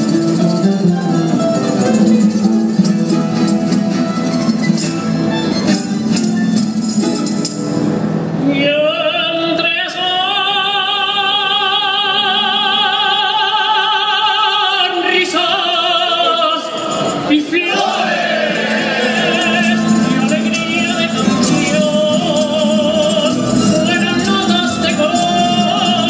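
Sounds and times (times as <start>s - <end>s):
guitars and bandurrias playing: 0.0s - 8.4s, 16.7s - 26.0s
man singing with vibrato: 8.4s - 26.0s.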